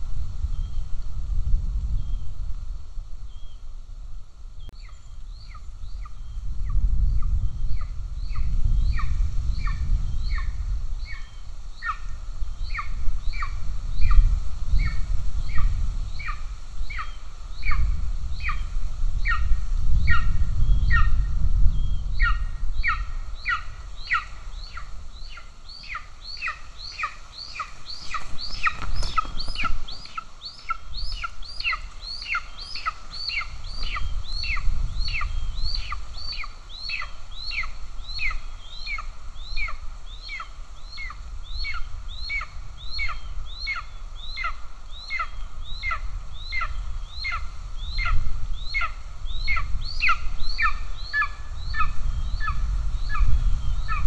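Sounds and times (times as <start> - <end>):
eaglet begging calls: 22.2 - 54.0.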